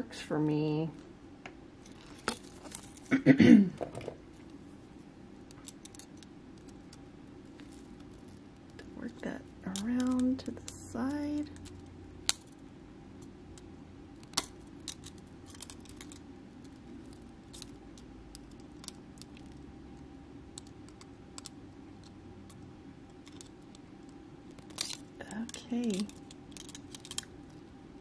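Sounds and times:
faint steady hum: 0.0s - 28.0s
pliers clicking and tapping: 9.7s - 10.3s.

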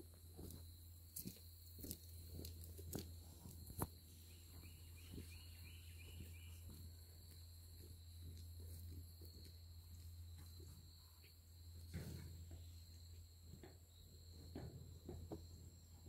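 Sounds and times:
footsteps on loose soil: 0.0s - 11.4s
steady low hum: 0.0s - 16.0s
faint high chirps: 4.1s - 6.8s.

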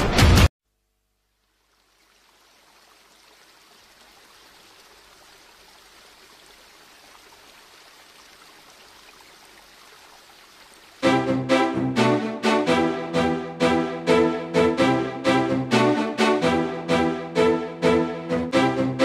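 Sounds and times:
faint flowing water: 0.7s - 14.3s.

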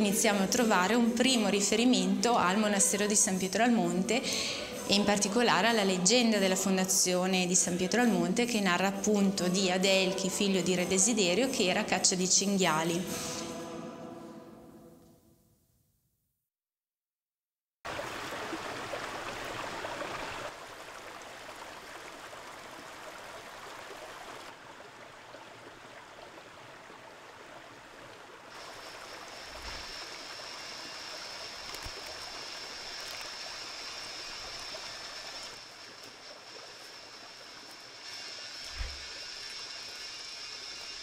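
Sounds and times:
stream water rushing: 17.9s - 41.0s
steady high-pitched whine: 28.6s - 41.0s.

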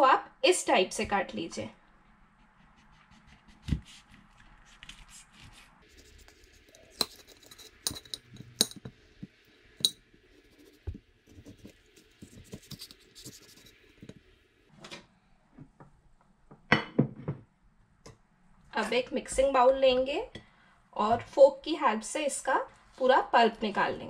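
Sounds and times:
soft handling sounds: 2.4s - 14.3s
knife clinking on ceramic plate: 6.9s - 8.9s.

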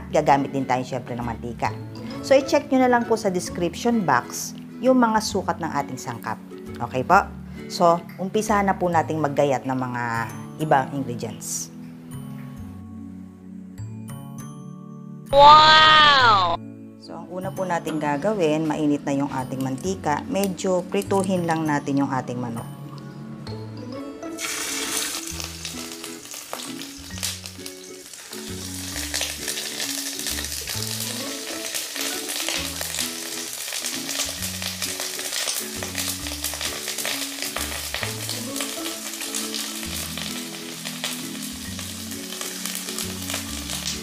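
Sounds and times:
background music: 0.0s - 44.0s
chicken sizzling in oil: 24.2s - 44.0s.

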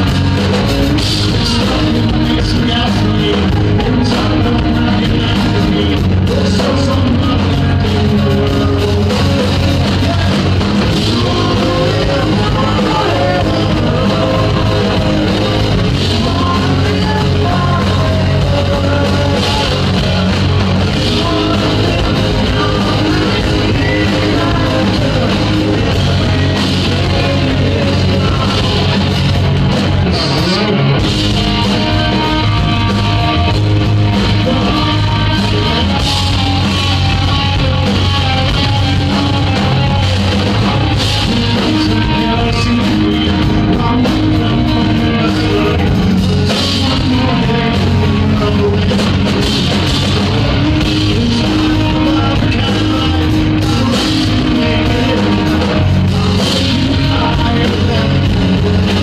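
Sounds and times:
bass guitar: 0.0s - 59.0s
drums: 0.0s - 59.0s
electric guitar: 0.0s - 59.0s
man singing: 0.0s - 59.0s.

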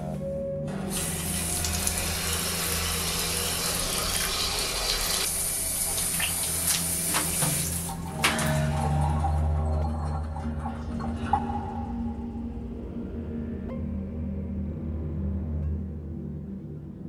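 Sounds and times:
low steady drone: 7.8s - 17.0s.

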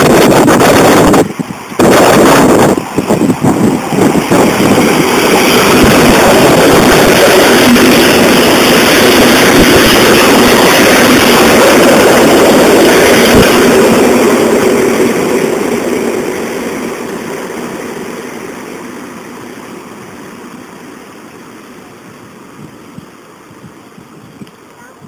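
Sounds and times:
electric train rumbling past: 0.0s - 25.0s.

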